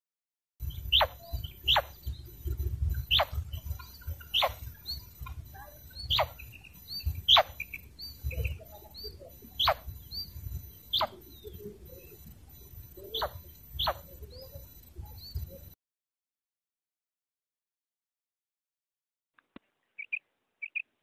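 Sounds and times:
small high chirps: 0.6s - 15.8s, 19.4s - 21.0s
quail calling: 0.7s - 15.7s, 19.9s - 20.9s.

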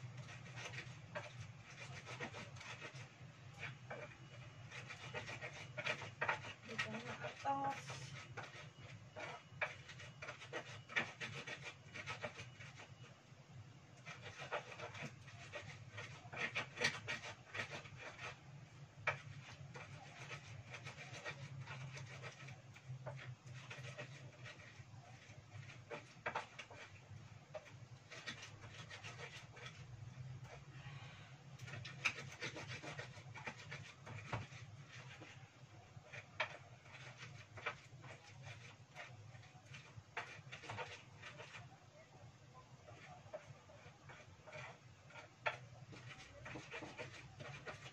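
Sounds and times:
pestle grinding in mortar: 0.1s - 12.9s, 14.0s - 18.4s, 19.0s - 30.6s, 31.6s - 35.4s, 36.0s - 41.6s, 42.9s - 47.9s.

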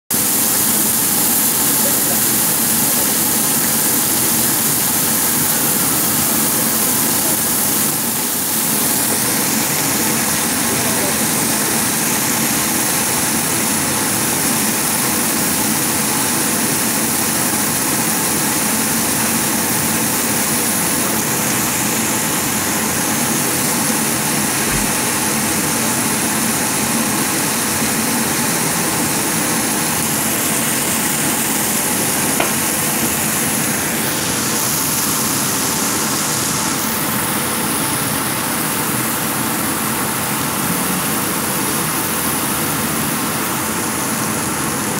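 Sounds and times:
lobster sizzling on griddle: 0.1s - 44.9s
extractor hood running: 19.9s - 36.2s.

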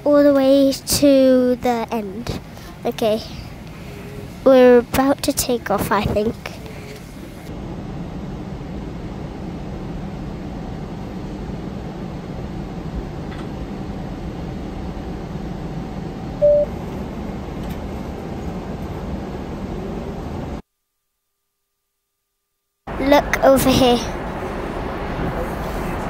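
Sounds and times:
airliner cabin rumble and hiss: 0.0s - 20.6s, 22.9s - 26.0s
single-tone cabin chime: 16.4s - 16.7s.

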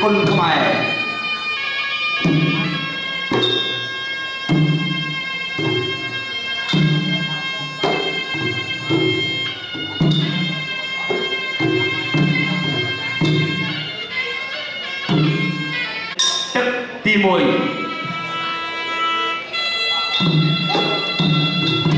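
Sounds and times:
reed oboe melody: 0.0s - 16.2s, 17.4s - 21.9s
hand drums: 2.2s - 14.2s, 14.9s - 16.7s, 20.1s - 21.9s.

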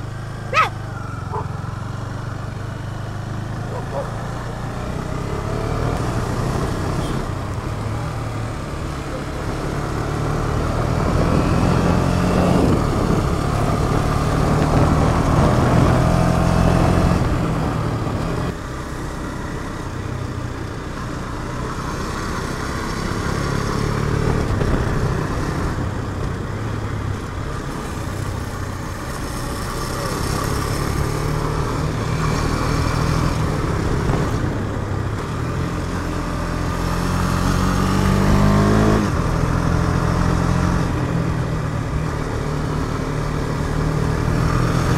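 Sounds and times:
motorcycle engine revving: 0.0s - 18.6s, 27.5s - 44.9s.

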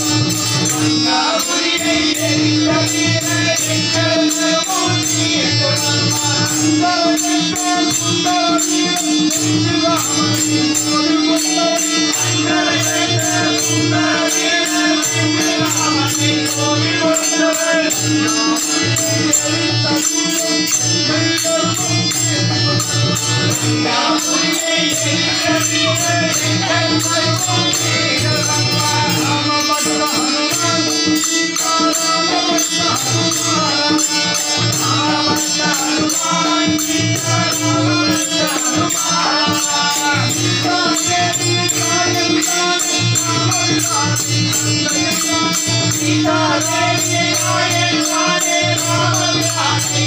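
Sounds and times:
hand percussion beat: 0.0s - 50.0s
harmonium drone: 0.0s - 50.0s
person singing: 0.0s - 50.0s.

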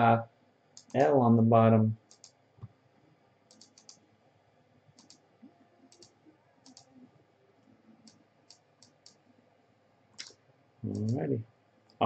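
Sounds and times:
computer mouse clicks: 0.8s - 1.1s, 2.1s - 2.7s, 3.5s - 4.0s, 5.0s - 5.2s, 5.9s - 6.9s, 8.0s - 9.2s, 10.2s - 11.3s.

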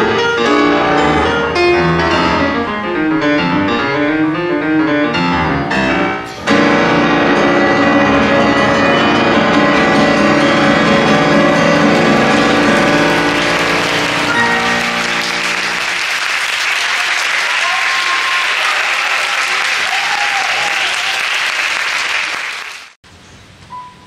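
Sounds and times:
grand piano chords: 0.0s - 16.4s
audience applause: 10.1s - 23.0s.

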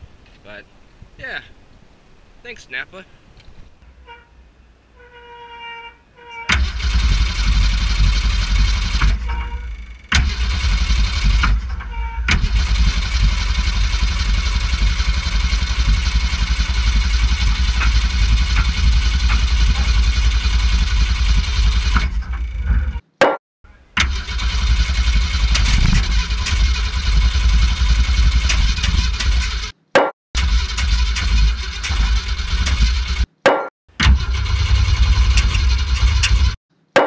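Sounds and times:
car engine running and cutting out: 6.5s - 23.0s, 24.0s - 29.7s, 30.4s - 33.3s, 34.0s - 36.6s.

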